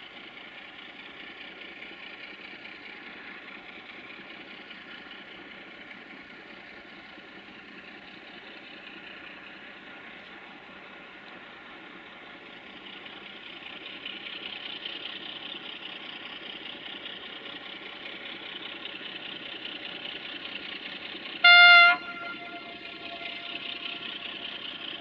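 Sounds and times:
diesel locomotive engine running: 0.0s - 25.0s
locomotive horn blast: 21.4s - 24.2s.

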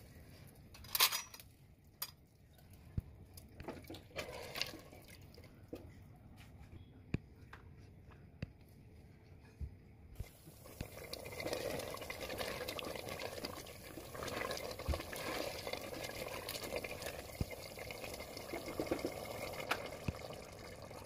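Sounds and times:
curry bubbling in pot: 10.2s - 21.0s.

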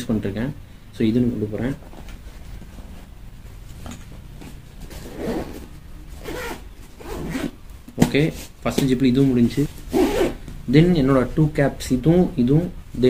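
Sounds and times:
bag handling noise: 1.8s - 10.5s
zipper being pulled shut: 4.8s - 7.6s, 9.9s - 10.4s.

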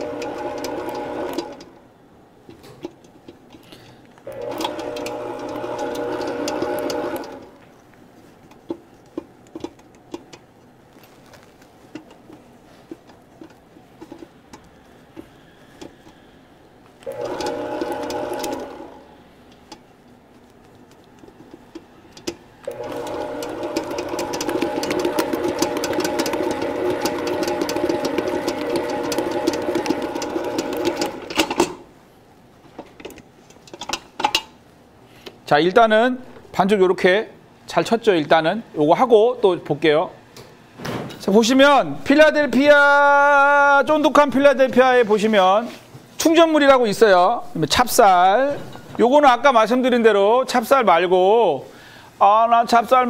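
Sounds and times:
stand mixer motor kneading dough: 0.0s - 1.7s, 4.3s - 7.5s, 17.1s - 19.0s, 22.7s - 31.5s.

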